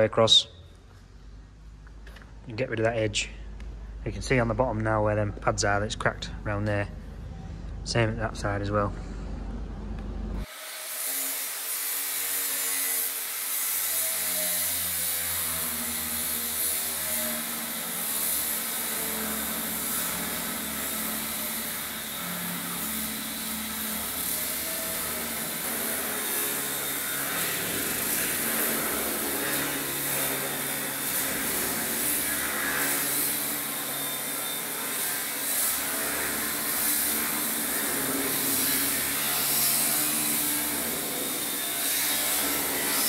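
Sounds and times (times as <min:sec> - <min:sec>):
angle grinder cutting steel: 0:10.4 - 0:43.0.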